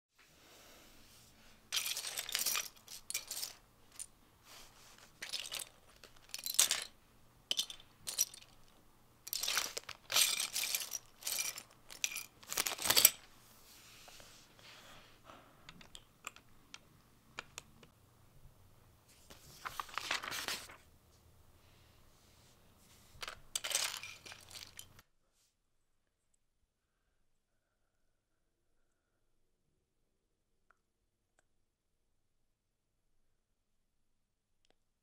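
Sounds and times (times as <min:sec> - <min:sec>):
plastic bricks clattering: 0:01.8 - 0:04.1, 0:05.1 - 0:08.7, 0:09.3 - 0:13.2, 0:23.2 - 0:25.0.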